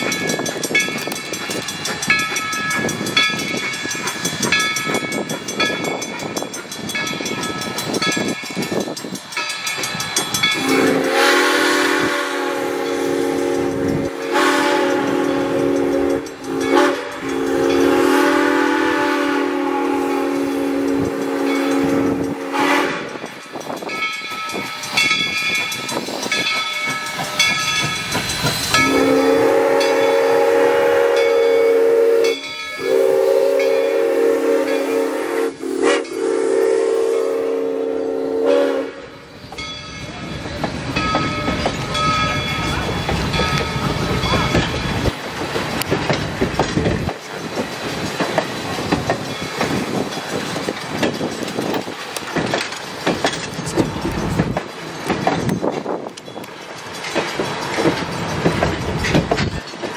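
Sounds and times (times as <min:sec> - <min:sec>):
bell clanging: 0:00.0 - 0:11.2, 0:15.1 - 0:18.4, 0:20.5 - 0:30.3, 0:39.4 - 0:59.9
steam locomotive engine: 0:00.0 - 0:59.9
steam whistle blast: 0:10.5 - 0:23.1, 0:28.8 - 0:39.2.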